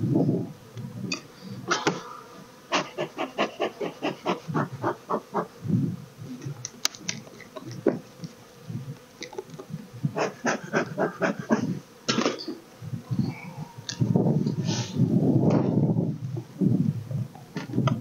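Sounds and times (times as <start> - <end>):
honeybees buzzing: 0.0 - 18.0
bellows smoker puffing: 1.3 - 5.6, 9.6 - 12.0, 14.4 - 15.2.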